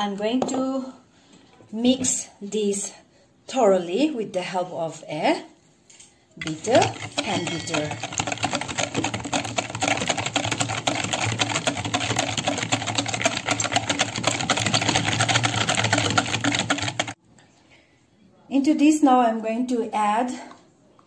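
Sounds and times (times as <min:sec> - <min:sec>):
whisk clicking against bowl: 0:06.4 - 0:17.2.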